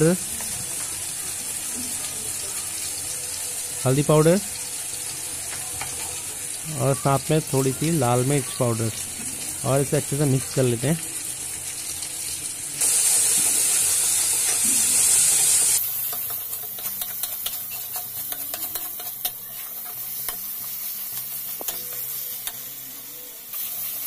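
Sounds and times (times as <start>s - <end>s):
masala sizzling in oil: 0.0s - 24.0s
metal spatula scraping pan: 15.4s - 22.6s.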